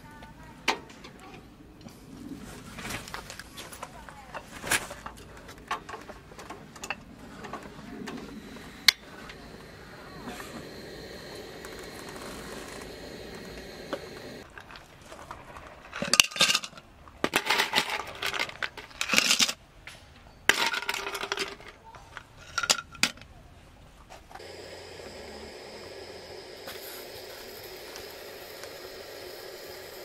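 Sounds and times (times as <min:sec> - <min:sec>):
gas stove burner hissing: 0:07.5 - 0:14.5, 0:24.4 - 0:30.0.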